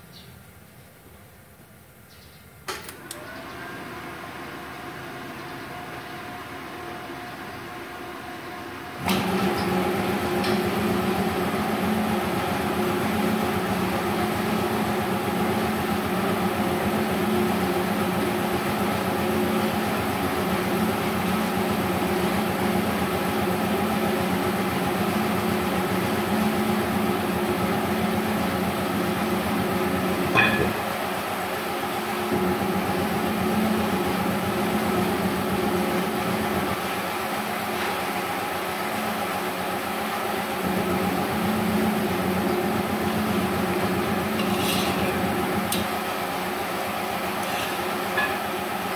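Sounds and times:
air compressor motor humming: 2.9s - 48.9s
sharp metal clank: 30.3s - 30.9s, 48.2s - 48.5s.

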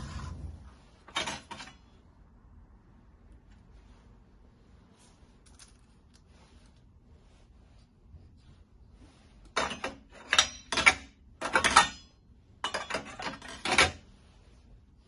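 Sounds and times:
metal tray scraping on metal: 0.0s - 1.7s.

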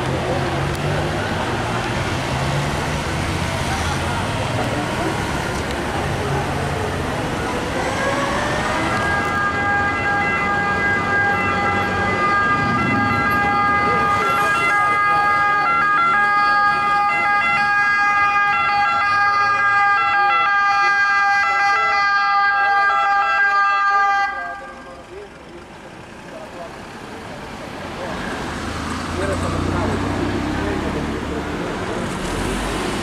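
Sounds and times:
city traffic: 0.0s - 33.0s
emergency siren: 6.5s - 25.1s.

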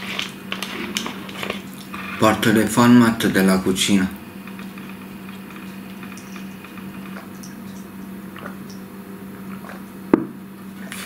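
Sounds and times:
steady low hum: 0.0s - 11.0s
person gulping water: 4.3s - 10.1s.

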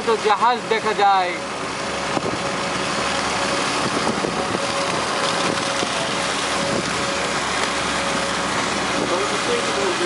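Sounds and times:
ship engine drone: 0.0s - 10.0s
wind noise: 3.7s - 7.1s.

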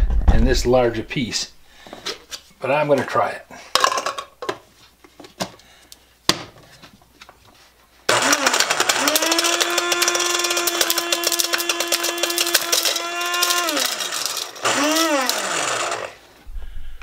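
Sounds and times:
plastic cap clattering in blender: 8.1s - 15.4s
blender motor whine: 8.1s - 16.2s.

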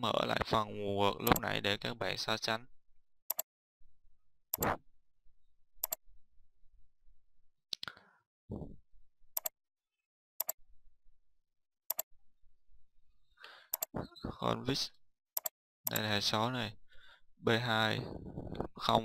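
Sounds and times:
computer mouse clicking: 1.2s - 1.4s, 11.9s - 12.1s, 13.7s - 13.9s, 15.4s - 16.1s.

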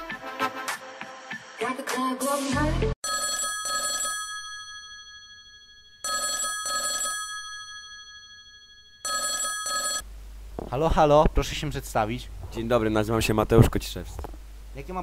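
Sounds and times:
telephone bell ringing: 3.0s - 10.0s.

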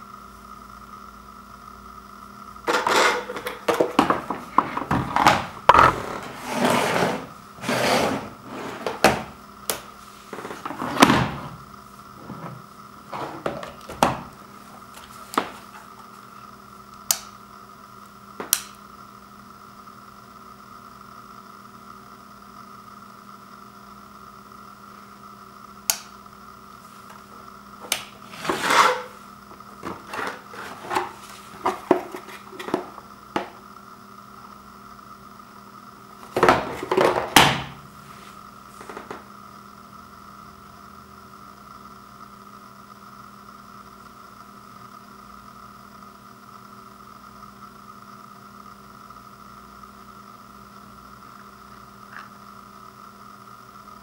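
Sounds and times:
faint steady hum: 0.0s - 54.0s
power strip handled on wood floor: 2.7s - 11.6s, 12.2s - 14.4s, 15.0s - 15.8s, 29.8s - 33.6s, 36.2s - 37.9s, 38.8s - 39.2s.

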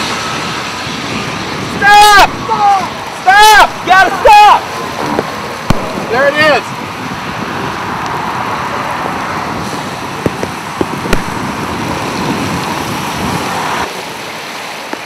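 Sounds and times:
traffic on wet highway: 0.0s - 15.0s
wind and rain: 0.0s - 15.0s.

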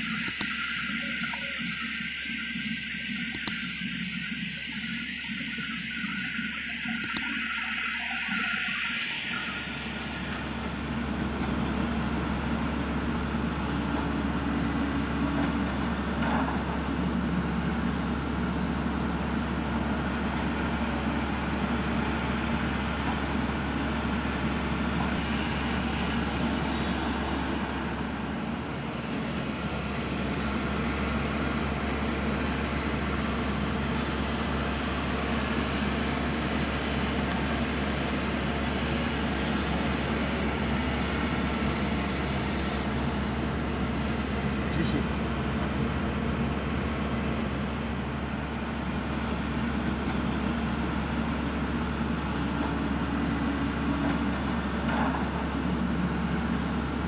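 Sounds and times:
excavator diesel engine drone: 0.0s - 57.0s.

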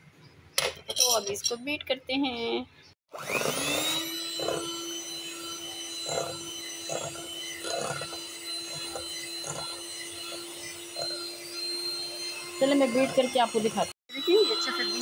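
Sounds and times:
electric hand mixer humming: 3.1s - 15.0s
beaters scraping glass bowl: 3.4s - 15.0s.

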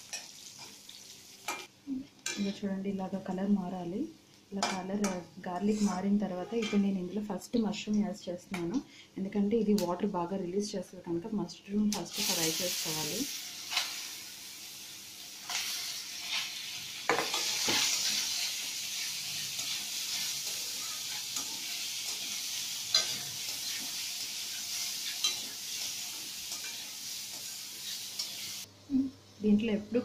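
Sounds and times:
mushrooms sizzling in oil: 0.0s - 1.7s, 11.9s - 30.0s
metal spatula scraping a pan: 15.5s - 28.5s.

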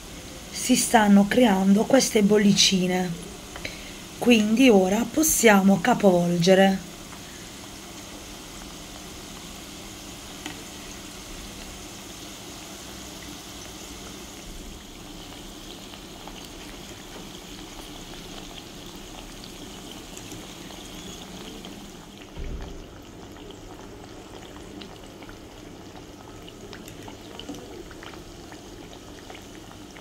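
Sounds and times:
oil bubbling and sizzling: 0.0s - 30.0s
low thump: 22.3s - 22.9s.

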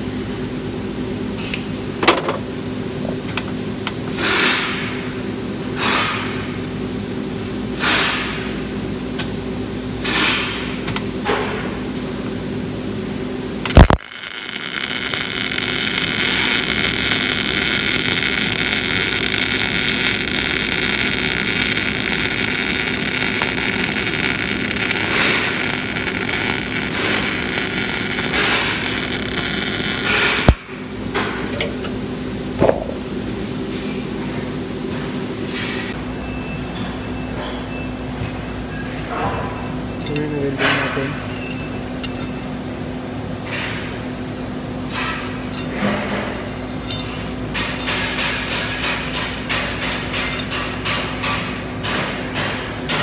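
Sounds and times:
steady low hum: 4.9s - 52.5s
welder click: 13.7s - 30.6s
welding arc hissing: 13.7s - 30.6s.

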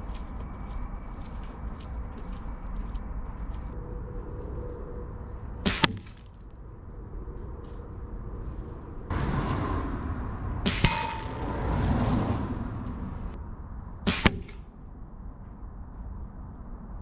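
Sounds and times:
air rifle shots: 5.6s - 6.2s, 10.6s - 11.6s, 14.0s - 14.7s
rushing noise: 8.2s - 17.0s
short metallic ring: 10.7s - 11.6s.

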